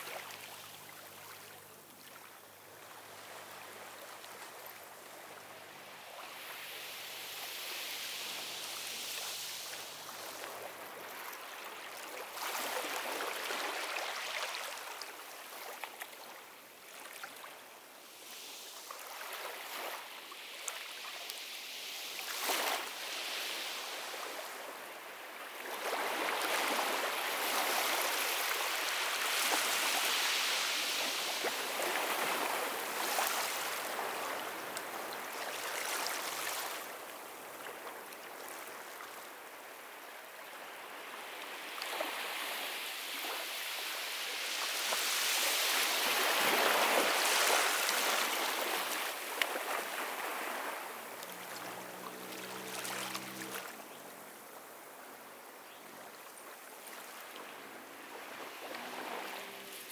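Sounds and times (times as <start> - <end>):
ocean surf breaking on beach: 21.4 - 38.0, 40.7 - 55.2, 56.5 - 59.9.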